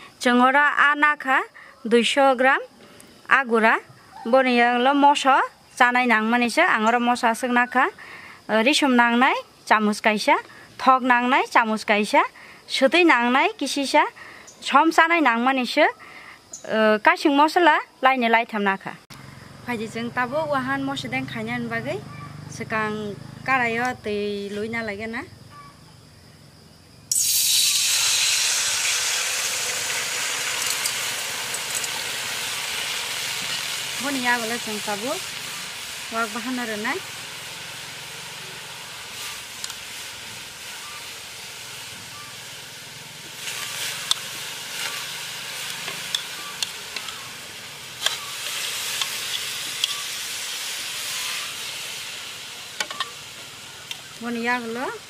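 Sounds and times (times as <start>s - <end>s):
faint crackles: 27.1s - 55.0s
liquid sizzling in hot wok: 27.1s - 55.0s
metal spoon clinking: 30.6s - 32.0s, 45.7s - 47.2s, 48.0s - 48.3s, 49.0s - 50.0s, 52.8s - 53.2s.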